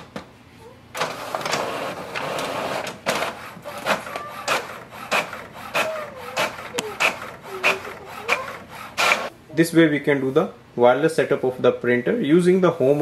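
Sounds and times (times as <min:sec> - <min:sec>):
printer clicks and strokes: 0:01.0 - 0:09.3
printer motor whines: 0:01.0 - 0:09.3
printer rasp: 0:01.0 - 0:09.3.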